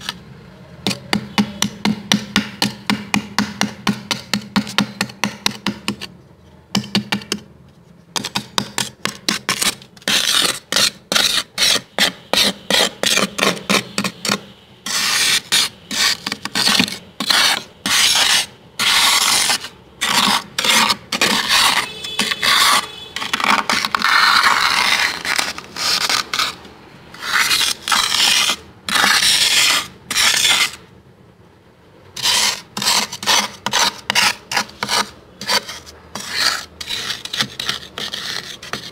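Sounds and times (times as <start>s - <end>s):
frost being scraped: 8.2s - 30.8s, 32.2s - 38.9s.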